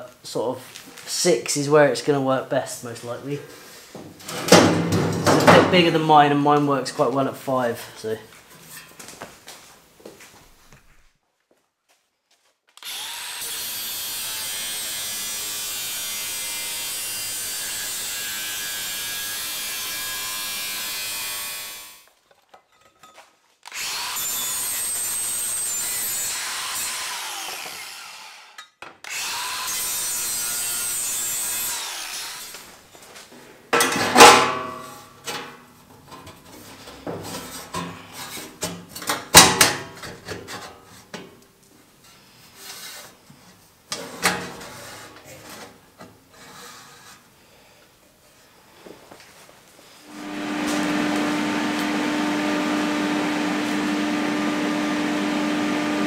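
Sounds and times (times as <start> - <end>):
metal clanks and knocks: 4.3 - 5.7
angle grinder sanding steel: 12.8 - 22.0, 23.8 - 32.6, 50.1 - 56.0.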